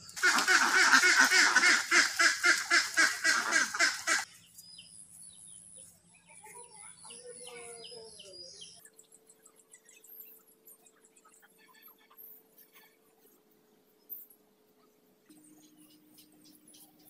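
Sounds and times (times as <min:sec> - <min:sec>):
ducks quacking loudly: 0:00.1 - 0:04.2
faint bird chirps: 0:13.9 - 0:17.0.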